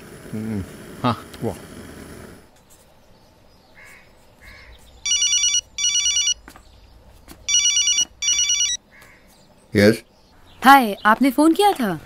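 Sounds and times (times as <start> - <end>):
telephone ringing: 5.1 - 6.4, 7.5 - 8.8.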